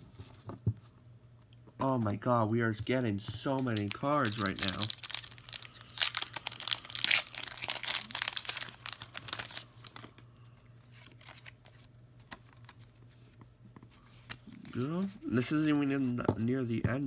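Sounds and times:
foil wrapper crinkling and tearing: 3.5s - 10.2s, 10.9s - 12.9s.

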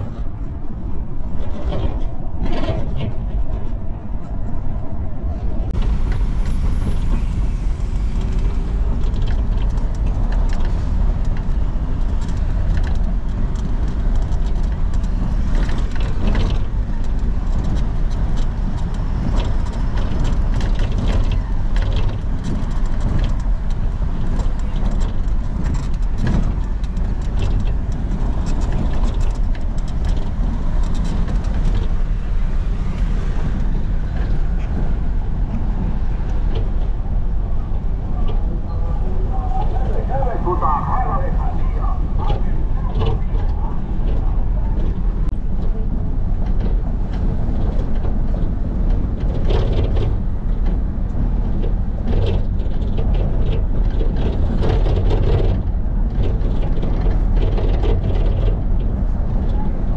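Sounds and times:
engine and road rumble: 0.0s - 59.9s
small rattles and knocks: 8.2s - 37.2s, 42.2s - 59.6s.

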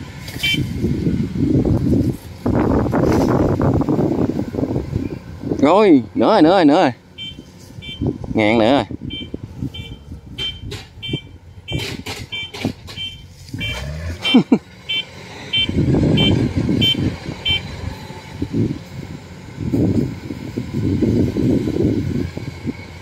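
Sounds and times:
harvester engine running: 0.0s - 23.0s
warning beeper short high beeps: 9.0s - 17.7s.

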